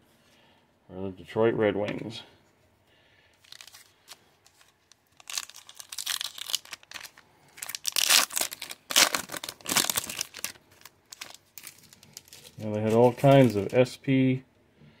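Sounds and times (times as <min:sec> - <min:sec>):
foil wrapper tearing and crinkling: 0:03.4 - 0:13.8.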